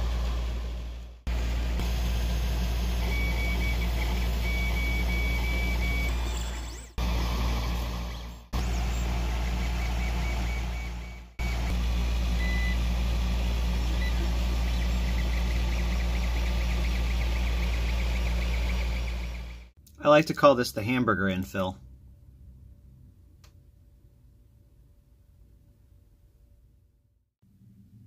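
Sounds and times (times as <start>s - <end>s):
printer fans and motors humming: 1.3s - 19.6s.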